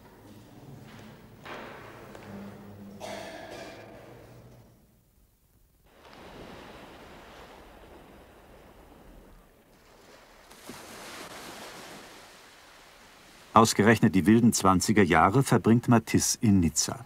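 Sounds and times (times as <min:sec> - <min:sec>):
sea waves washing ashore: 0:05.9 - 0:16.2.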